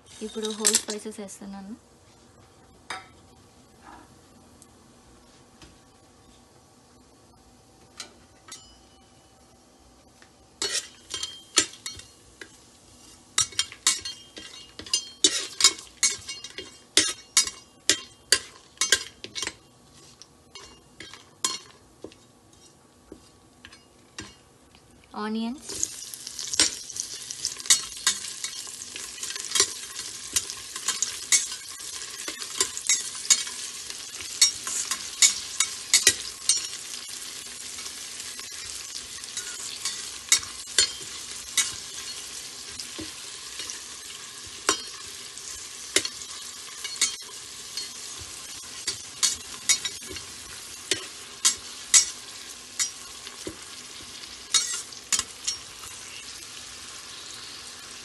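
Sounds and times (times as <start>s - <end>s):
onions sizzling in oil: 10.5s - 24.5s, 25.2s - 58.0s
metal spoon scraping a pot: 54.5s - 56.4s.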